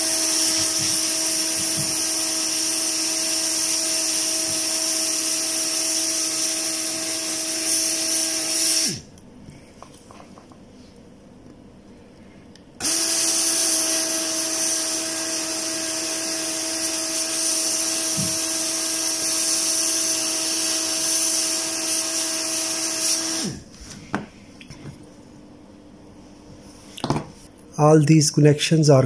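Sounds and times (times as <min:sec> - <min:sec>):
electric blower motor whining: 0:00.0 - 0:09.1, 0:12.8 - 0:23.7.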